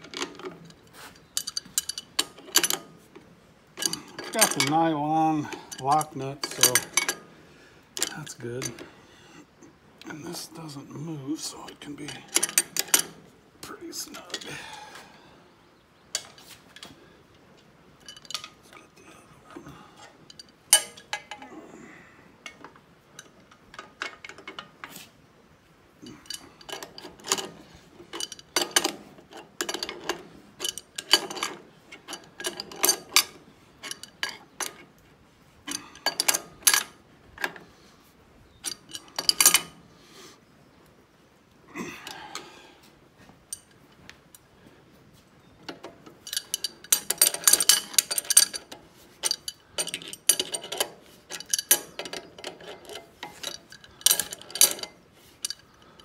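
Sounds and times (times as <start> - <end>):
wrenches clinking on bolts: 0.0 - 3.0, 3.8 - 7.3, 8.0 - 8.9, 11.6 - 13.3, 18.0 - 21.5, 26.0 - 35.0, 35.7 - 37.7, 38.6 - 39.8, 45.6 - 56.0.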